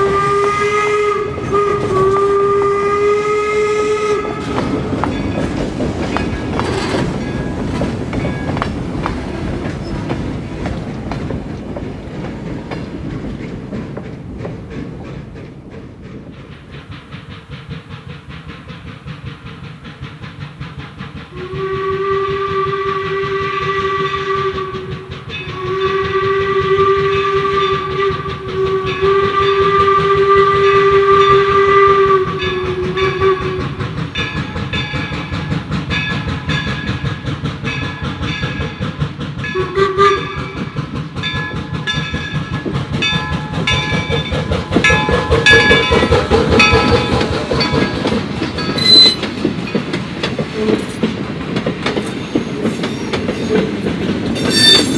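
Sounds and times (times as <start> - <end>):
steam whistle blasts: 0.0 - 4.7, 21.3 - 33.8, 39.5 - 40.6, 48.8 - 49.3, 54.4 - 54.9
steam locomotive chuffing: 0.0 - 54.9.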